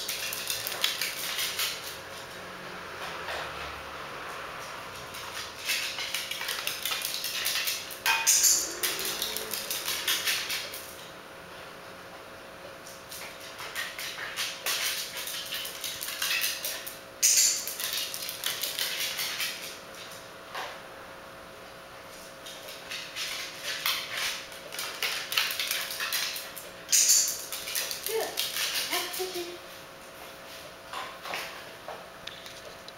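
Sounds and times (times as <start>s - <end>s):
dog claws clicking on tile: 0.0s - 2.0s, 5.0s - 11.0s, 12.8s - 20.2s, 22.4s - 29.4s.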